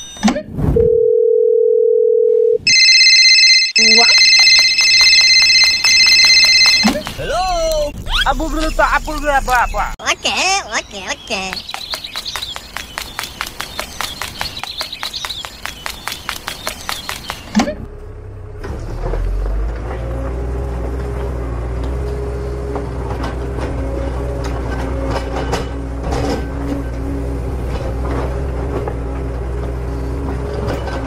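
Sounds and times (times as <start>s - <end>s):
rapid even clicking: 11.4s - 17.6s.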